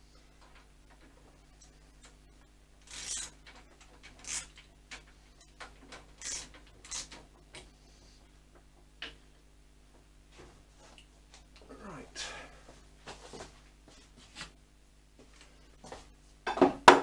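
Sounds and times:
metal parts clicking and scraping: 2.8 - 7.6.

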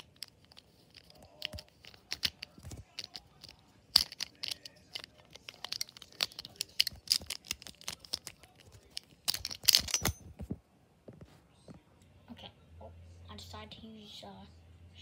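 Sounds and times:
small metal and plastic parts clicking: 0.0 - 10.3.

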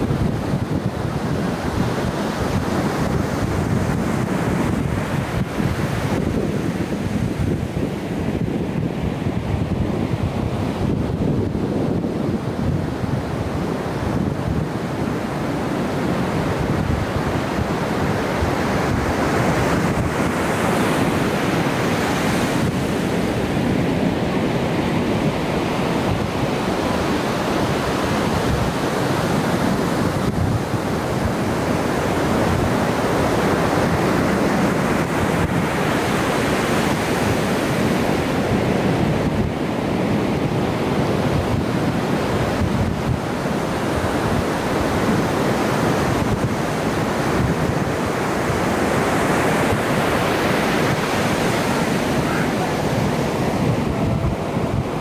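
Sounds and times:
ocean surf breaking: 0.0 - 55.0
wind on microphone: 0.0 - 55.0.

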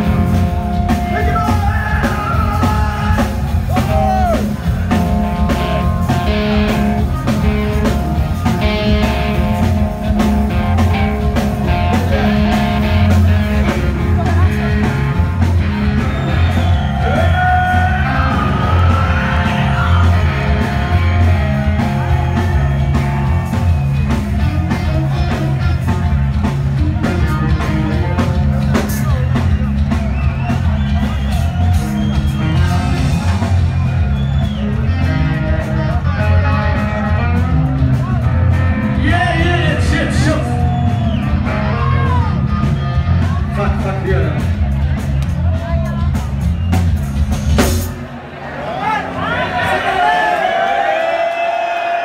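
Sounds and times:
electric guitars: 0.0 - 48.3
drums beating: 0.0 - 52.0.

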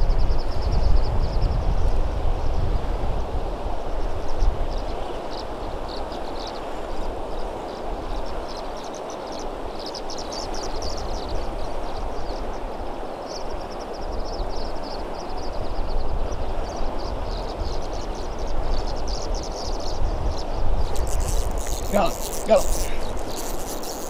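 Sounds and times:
river current rushing: 20.2 - 24.0
high chirps: 20.8 - 24.0.

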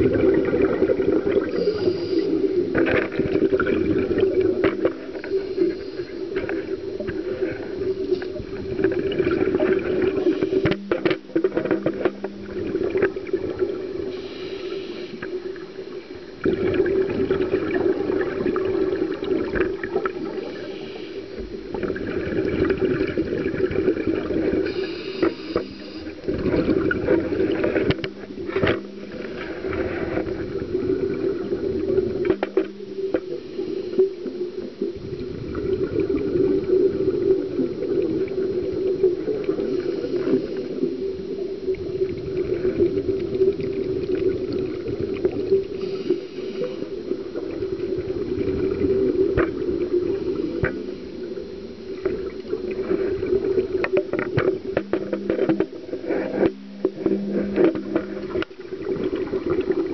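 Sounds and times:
diver breathing through regulator: 1.4 - 2.6, 14.1 - 15.4, 20.4 - 21.4, 24.6 - 26.4, 45.7 - 47.1.

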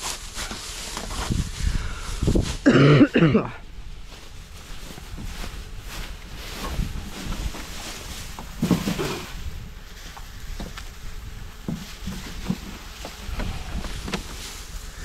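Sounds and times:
dry grass rustling and crunching: 0.0 - 15.0
wooden knocks and bump: 8.4 - 9.3, 11.6 - 14.4.

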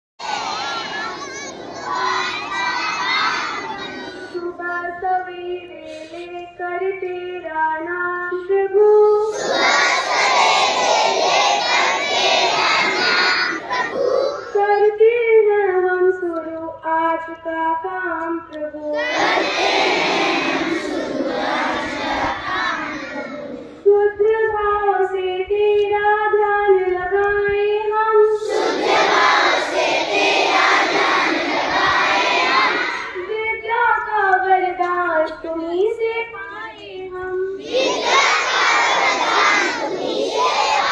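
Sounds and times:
children singing together: 0.2 - 4.9, 9.1 - 14.9, 18.9 - 23.8, 28.3 - 33.3, 37.6 - 40.9.

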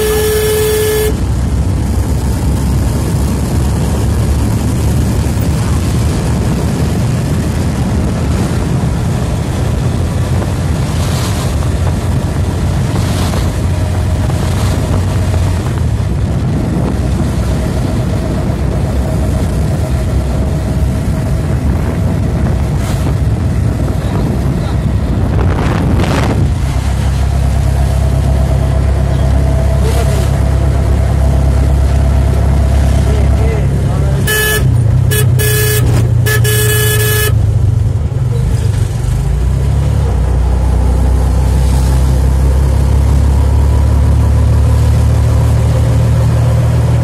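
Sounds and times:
vehicle engine and road rumble: 0.0 - 47.0
wind on microphone: 1.1 - 33.0.

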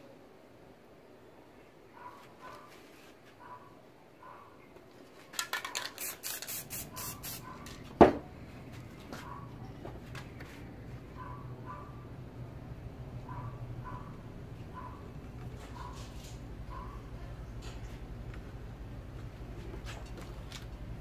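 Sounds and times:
spray can rattling when shaken: 5.2 - 7.8.

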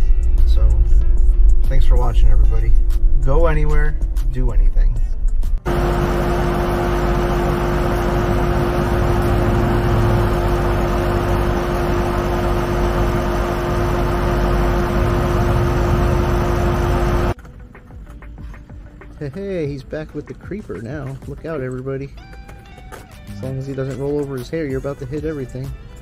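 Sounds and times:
electric air compressor running: 5.7 - 17.4.

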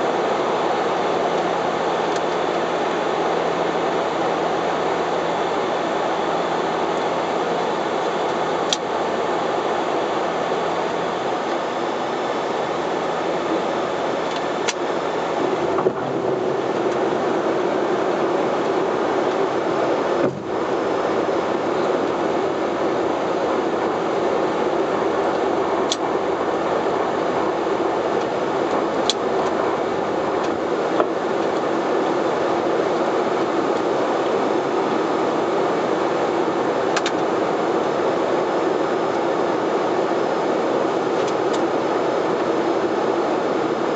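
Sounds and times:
turboprop engine drone: 0.0 - 43.9
rushing air: 10.6 - 32.6.

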